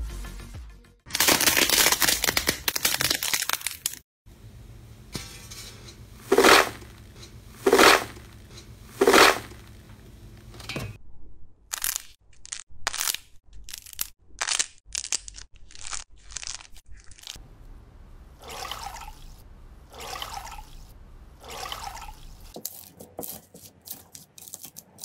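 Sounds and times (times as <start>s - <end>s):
dense crackling and crunching: 1.1s - 4.0s, 11.7s - 17.7s.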